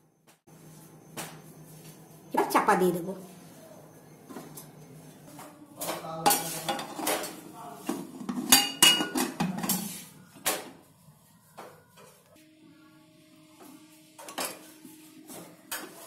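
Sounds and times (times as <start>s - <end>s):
metal lid clanking and scraping: 8.1s - 10.0s.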